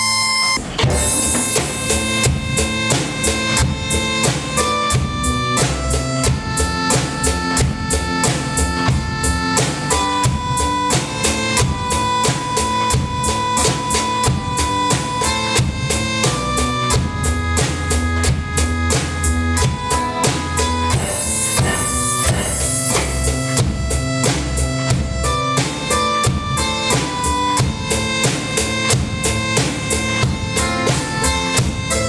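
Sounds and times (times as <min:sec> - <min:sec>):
drum kit steady beat: 0:00.6 - 0:32.0.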